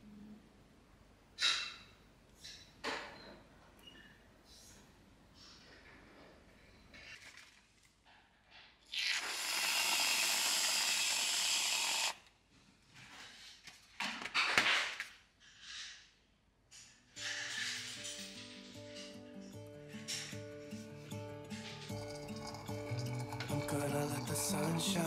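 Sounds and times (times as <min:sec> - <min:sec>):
aerosol can spraying hiss: 0:09.2 - 0:12.2.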